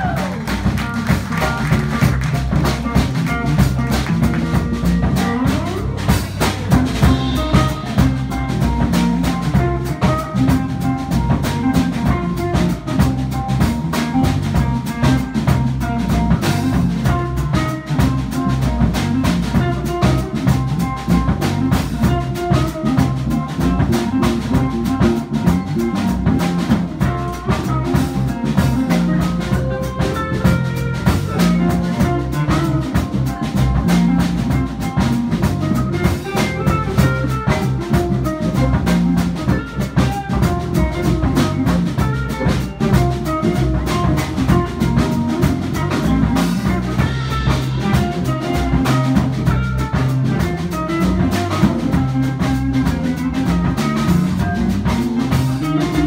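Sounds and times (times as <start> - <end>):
drum kit: 0.0 - 56.0
electric guitar: 0.0 - 56.0.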